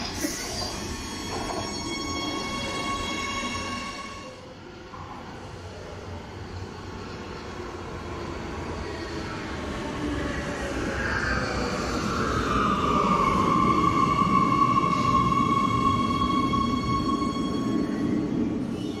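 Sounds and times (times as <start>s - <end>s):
train brakes whine: 0.0s - 4.5s, 12.8s - 19.0s
train rumble: 0.0s - 19.0s.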